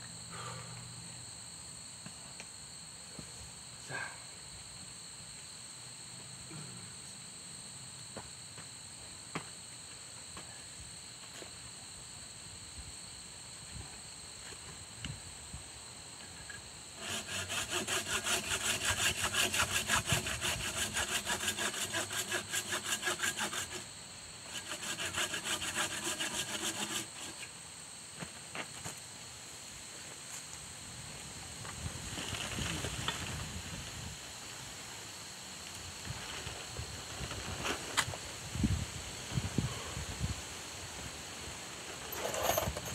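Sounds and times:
handsaw sawing wood: 17.0 - 23.9, 24.5 - 27.4.

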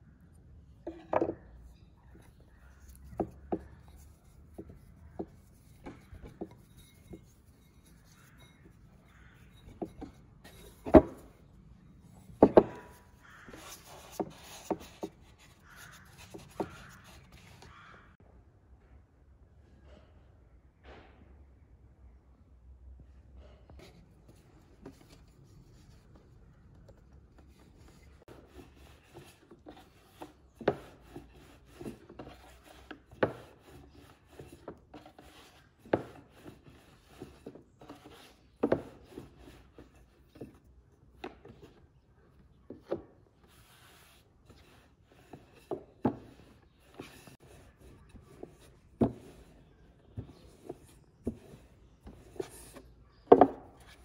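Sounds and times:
rolling pin rubbing dough: 2.2 - 11.4, 27.6 - 40.6, 42.8 - 52.9
wooden knocks: 2.8 - 11.4, 12.2 - 18.0, 50.1 - 54.0.

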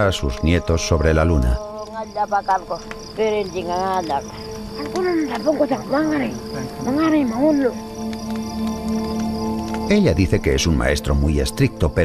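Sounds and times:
crickets chirping: 0.0 - 12.0
elderly woman speaking: 2.0 - 7.7.

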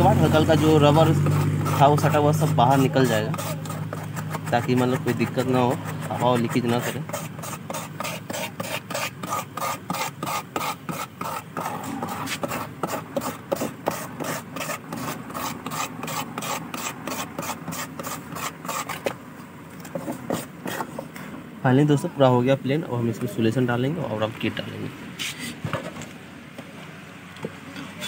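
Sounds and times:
hand tool scraping rubber: 0.0 - 19.2, 19.8 - 21.0.

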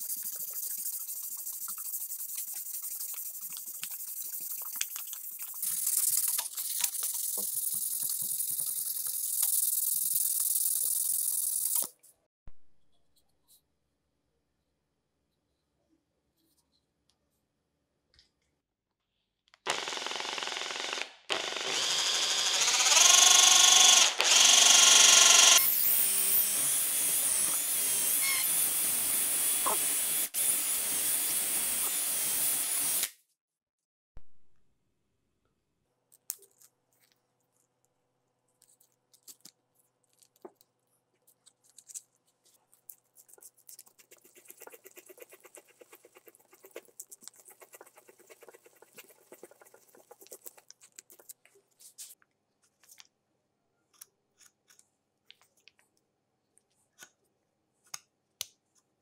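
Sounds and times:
cordless drill boring into wood: 19.7 - 33.1.

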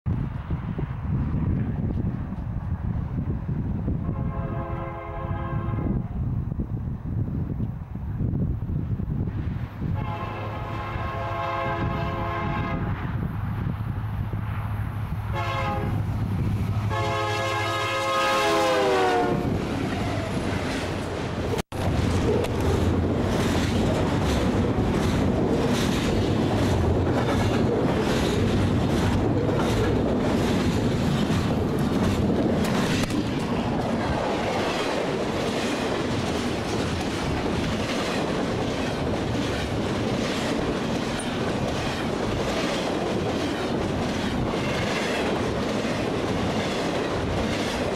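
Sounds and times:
train rumble: 0.1 - 47.9
clickety-clack of train cars: 0.4 - 5.9, 15.2 - 47.9
train horn blasts: 4.0 - 6.1, 10.0 - 13.0, 15.3 - 16.0, 16.9 - 19.6.

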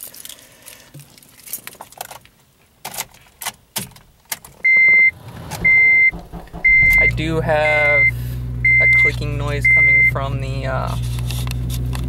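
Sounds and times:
car warning chime beeps: 4.6 - 10.4.

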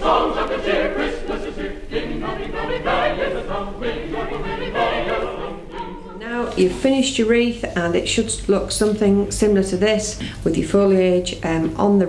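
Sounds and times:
choir singing a carol: 0.0 - 7.4.

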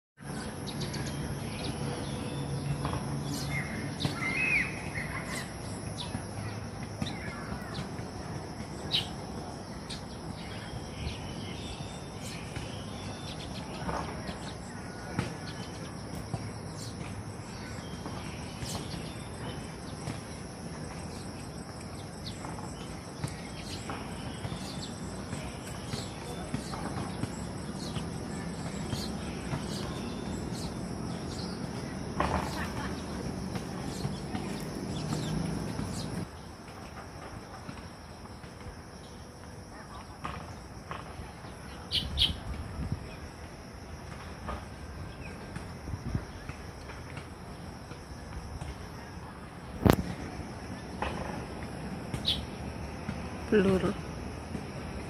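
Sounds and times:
bird chirps: 0.4 - 8.0, 20.9 - 36.2, 41.7 - 42.5, 52.2 - 52.6.

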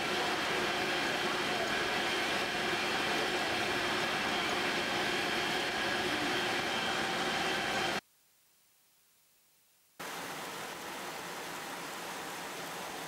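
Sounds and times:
mechanical running noise: 0.0 - 8.0.

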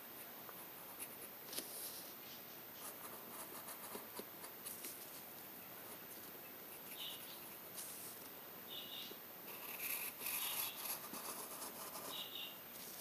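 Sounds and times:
pencil scratching on paper: 2.8 - 5.0, 9.5 - 12.3.

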